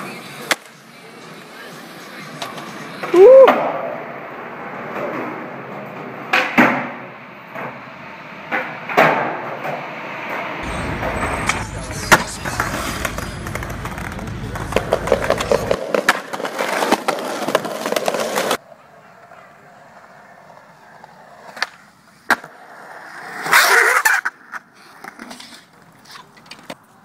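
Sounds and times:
skateboard clacks: 0:00.0 - 0:03.9, 0:04.8 - 0:07.9, 0:08.5 - 0:27.0
skateboard wheels on concrete: 0:00.0 - 0:27.0
low rumble: 0:10.6 - 0:15.8.

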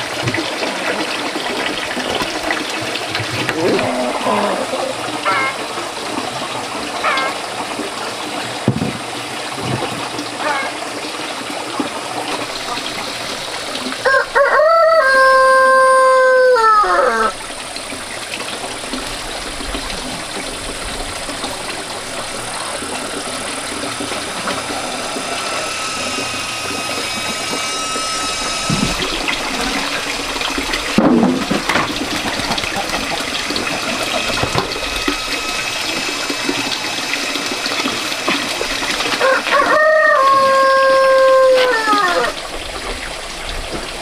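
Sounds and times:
running water hiss: 0:00.0 - 0:44.0
rooster crowing: 0:05.2 - 0:05.6, 0:14.0 - 0:17.4, 0:24.4 - 0:28.7, 0:39.2 - 0:42.4.

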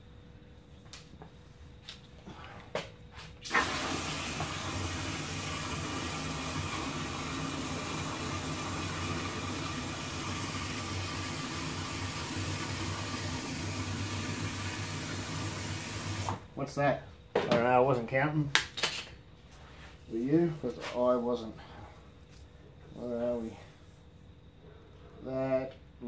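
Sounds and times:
hose water splashing into container: 0:03.4 - 0:16.4.

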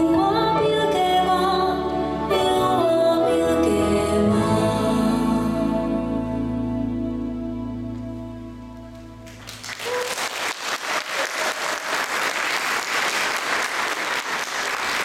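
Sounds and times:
audience applause: 0:09.3 - 0:15.0.

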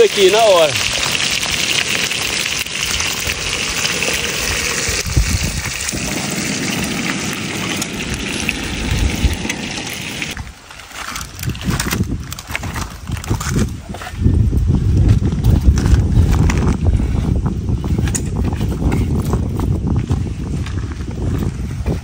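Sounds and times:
fish sizzling in hot oil: 0:00.0 - 0:10.4.

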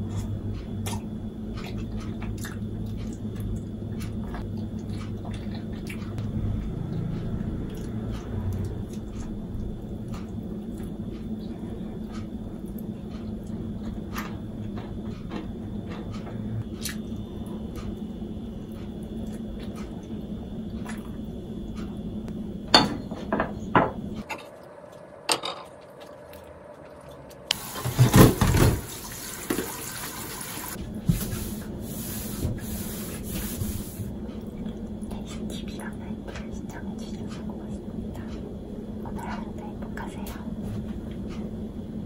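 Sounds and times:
dishes clattering: 0:22.7 - 0:24.5
tap running into sink: 0:27.6 - 0:31.3.

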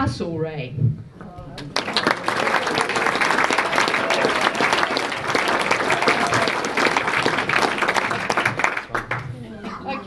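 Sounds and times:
small audience applauding: 0:01.6 - 0:09.4.

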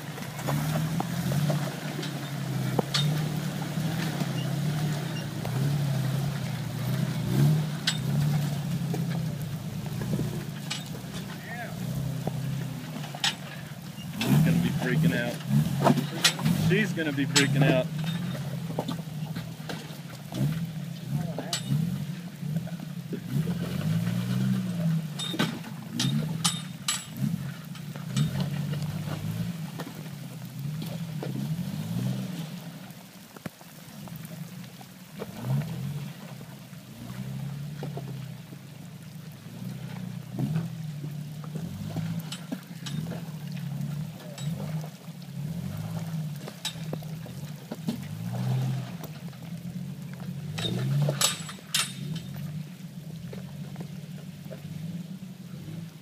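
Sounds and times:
engine revving in low gear: 0:00.0 - 0:56.0.

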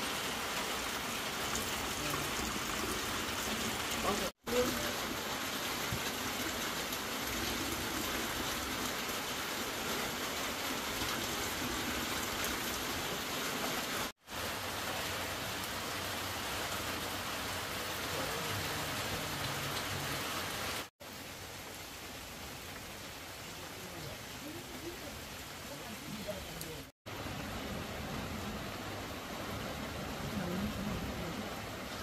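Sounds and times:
steady hiss of water: 0:00.0 - 0:32.0.

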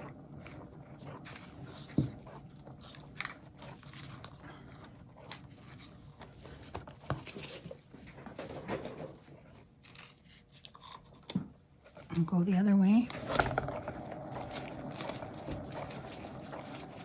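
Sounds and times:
turntable spinning: 0:00.0 - 0:05.1, 0:13.0 - 0:17.0.

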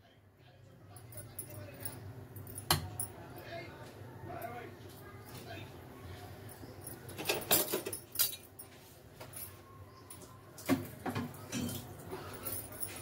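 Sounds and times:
metal pots and utensils clinking: 0:06.8 - 0:08.7, 0:10.1 - 0:13.0.

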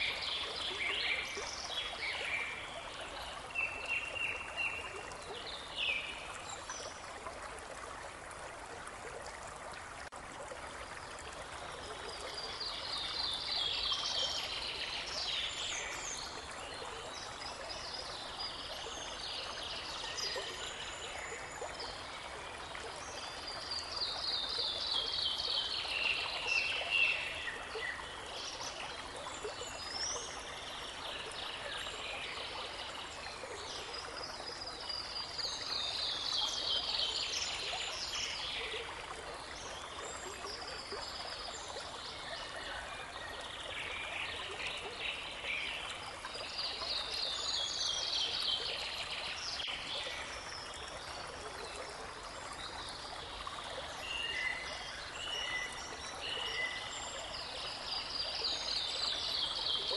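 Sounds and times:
babbling brook: 0:00.0 - 0:59.9.

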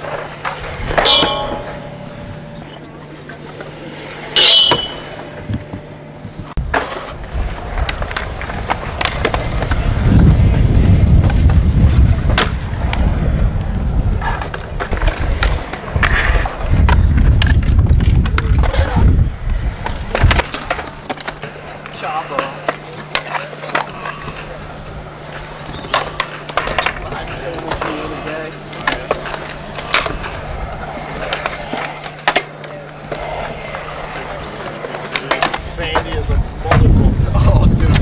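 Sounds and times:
wheels rolling over concrete: 0:00.0 - 0:38.0
metal clank on handrail: 0:01.0 - 0:02.2, 0:04.4 - 0:05.2.

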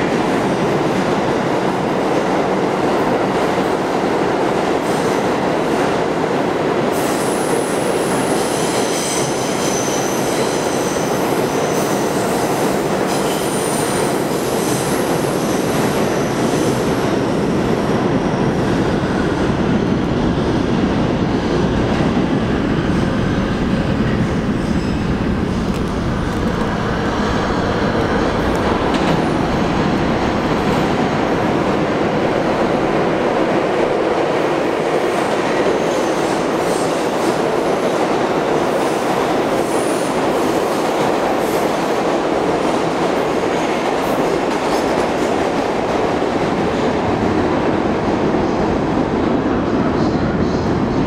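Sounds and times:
subway train rumbling in tunnel: 0:00.0 - 0:51.0
train wheels squealing: 0:07.0 - 0:16.8, 0:24.1 - 0:25.1.

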